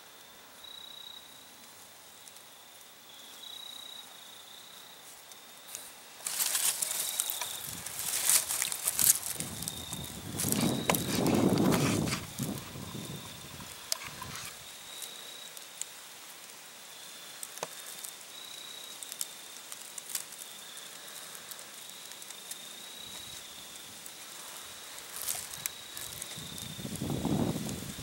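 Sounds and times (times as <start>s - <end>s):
high-pitched insect trill: 0.1s - 28.0s
clicks and rustles in grass: 5.0s - 16.6s, 17.2s - 28.0s.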